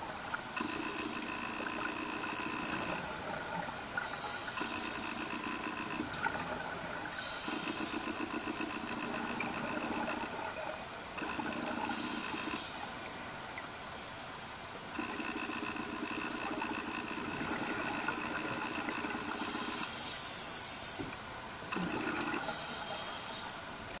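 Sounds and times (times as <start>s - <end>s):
exhaled bubbles bubbling: 0.4s - 13.0s, 15.0s - 19.6s, 21.7s - 22.6s
regulator breath hiss: 19.4s - 21.0s.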